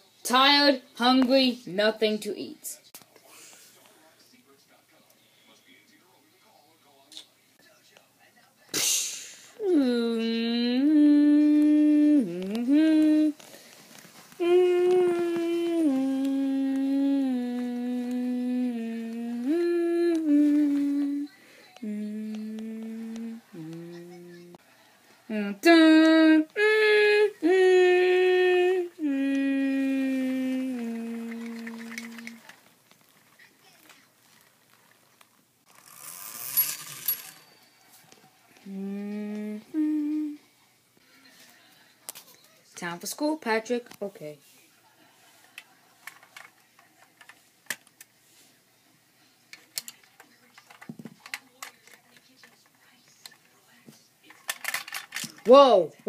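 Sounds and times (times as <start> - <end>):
child singing long held notes: 9.6 - 13.4, 14.4 - 24.6, 25.3 - 32.4, 38.7 - 40.4
plastic toys clicking and tapping: 31.3 - 32.6, 45.6 - 48.1, 49.5 - 53.4, 54.3 - 55.6.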